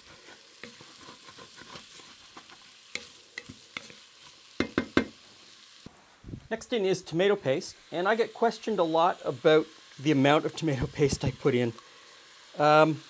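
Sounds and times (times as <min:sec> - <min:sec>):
wooden spatula scraping pot: 0:00.0 - 0:04.1
vegetables sizzling: 0:00.0 - 0:13.0
spatula knocking against pot: 0:04.6 - 0:05.2.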